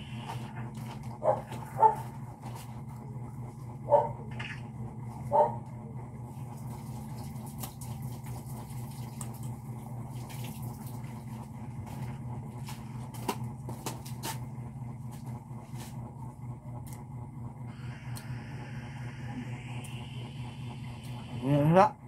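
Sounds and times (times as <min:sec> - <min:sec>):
steady low hum: 0:00.0 - 0:22.0
dog barking: 0:01.2 - 0:02.1, 0:03.8 - 0:04.3, 0:05.3 - 0:05.7.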